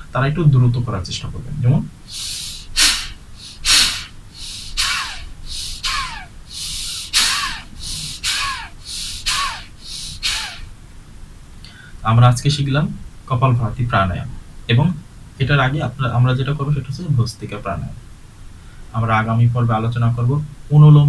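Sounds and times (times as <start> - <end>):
man exhaling forcefully through nose: 2.1 - 10.7.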